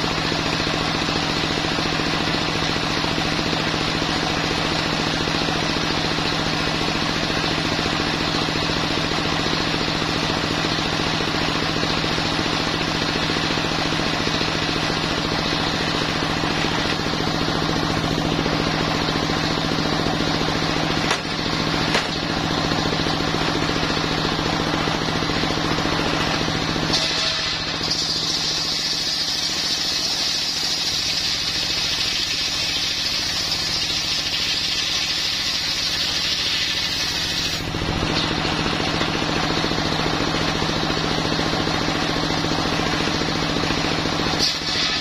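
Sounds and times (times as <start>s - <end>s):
diesel engine running: 0.0s - 45.0s
circular saw blade spinning: 21.6s - 37.7s.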